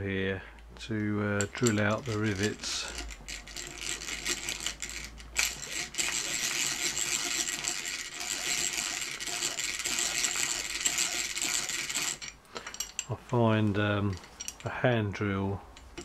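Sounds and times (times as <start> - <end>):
hand drill drilling metal: 1.4 - 13.1, 15.7 - 16.0.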